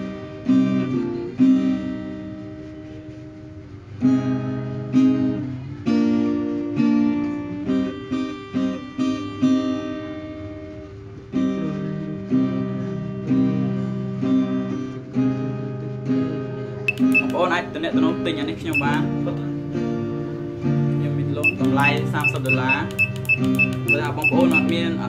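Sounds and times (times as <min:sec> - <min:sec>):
acoustic guitar plucked chords: 0:00.0 - 0:25.0.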